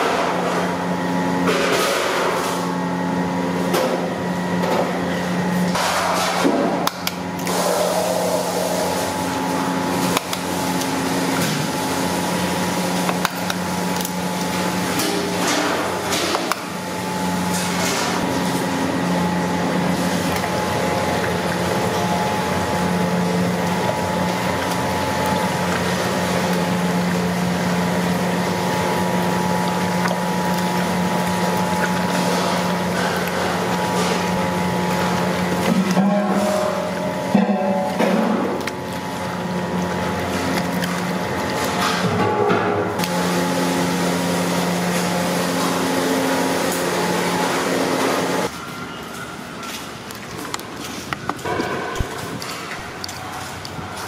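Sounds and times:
machine hum with rushing noise: 0.0 - 50.6.

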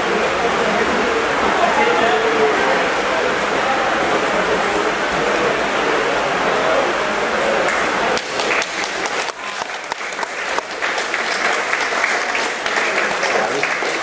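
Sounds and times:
scattered clapping: 7.6 - 14.0.

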